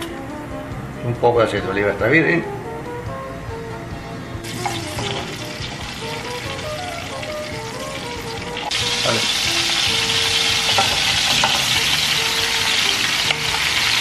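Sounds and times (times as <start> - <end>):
metal tongs turning onions: 4.4 - 5.4, 8.4 - 14.0
onions sizzling in a frying pan: 4.4 - 14.0.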